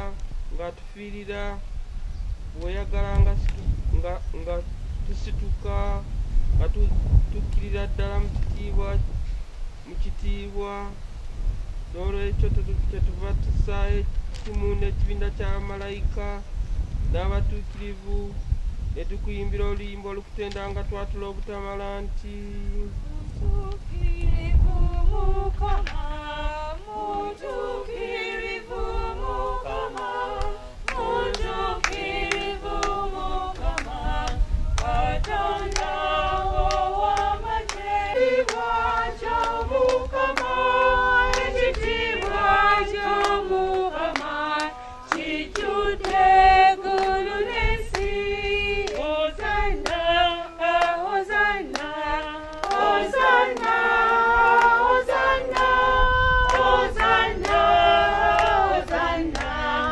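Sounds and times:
congregation singing: 0.0s - 1.6s, 19.5s - 59.9s
hand-clapping in time: 25.8s - 26.1s, 29.7s - 48.1s, 48.8s - 50.1s, 50.8s - 59.9s.

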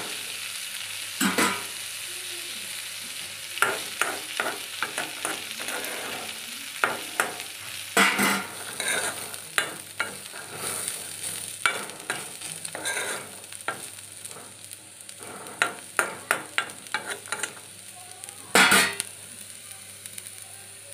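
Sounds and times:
light frying sizzle: 0.0s - 20.9s
metal spoon scraping pan: 3.6s - 17.6s, 18.5s - 19.1s.

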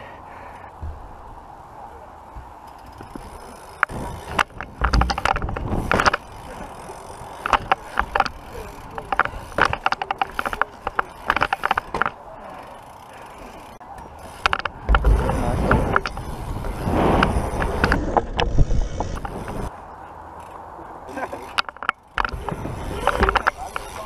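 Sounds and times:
heavy low bumps: 0.8s - 1.5s, 14.4s - 19.7s
bike tyre rumble on tarmac: 0.8s - 19.7s, 21.1s - 24.0s.

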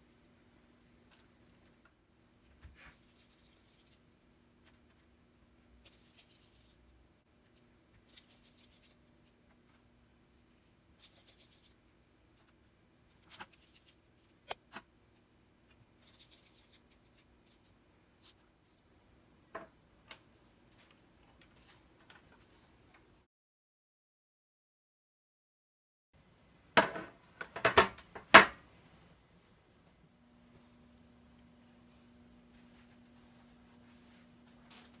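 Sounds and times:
low room hum: 0.0s - 23.3s, 26.2s - 35.0s
soft paper rustles: 20.7s - 23.1s.

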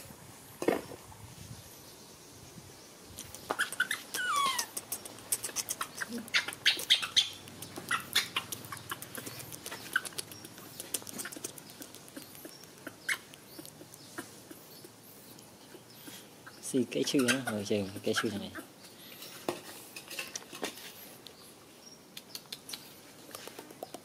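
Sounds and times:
animal squeaks and squeals: 3.2s - 19.4s.

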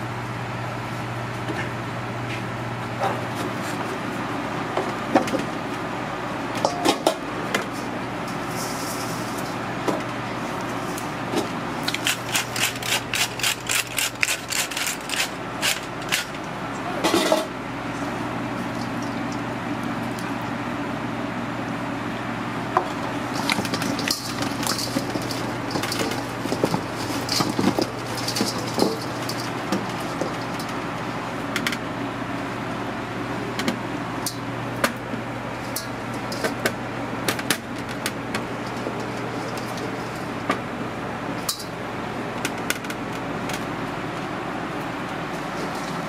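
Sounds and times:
kitchen hum: 0.0s - 46.0s
clicks and scrapes in metal bowl: 23.3s - 30.8s.

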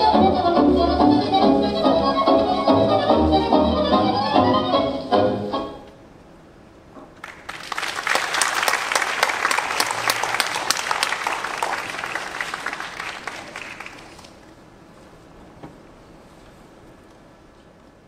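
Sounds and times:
audience applauding: 7.2s - 14.5s.

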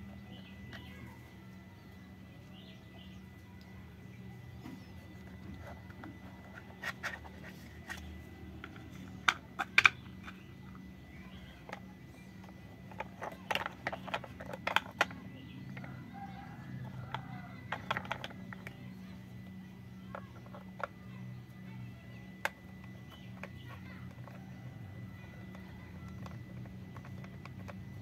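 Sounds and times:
low steady hum: 0.0s - 28.0s
plastic toy parts clicking: 5.2s - 15.9s, 16.5s - 18.8s, 22.3s - 28.0s.

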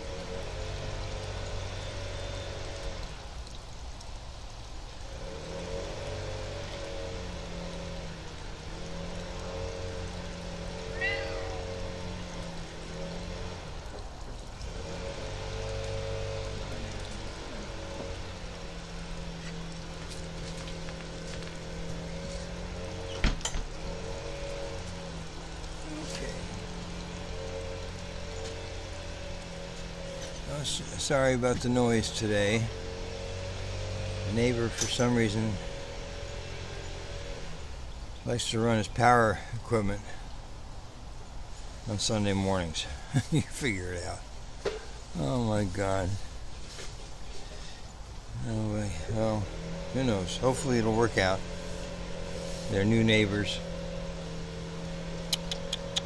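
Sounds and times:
lawn equipment engine running: 5.0s - 38.3s, 48.4s - 56.0s.

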